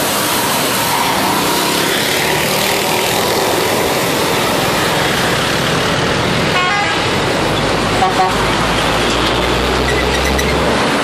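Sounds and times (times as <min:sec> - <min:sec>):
bus passing with road noise: 0:00.0 - 0:11.0
multi-tone bus horn: 0:06.5 - 0:07.2, 0:07.9 - 0:08.6.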